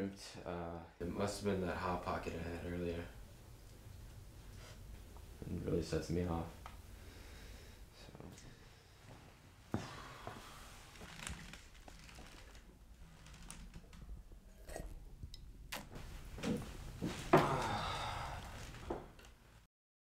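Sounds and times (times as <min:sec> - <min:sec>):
rustling: 0:09.1 - 0:15.0.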